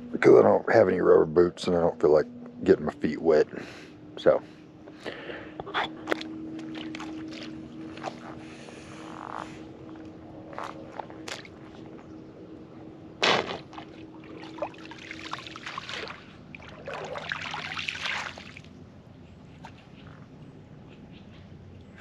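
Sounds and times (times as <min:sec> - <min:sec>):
wet mud scraping and sloshing: 0:05.7 - 0:12.0, 0:13.2 - 0:18.7.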